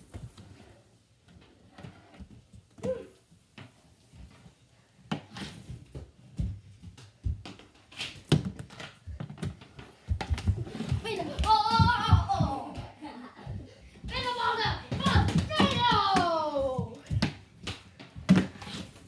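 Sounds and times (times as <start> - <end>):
hockey sticks and ball clacking: 5.1 - 12.9, 14.0 - 19.0
child's voice: 11.0 - 13.0, 14.0 - 17.1.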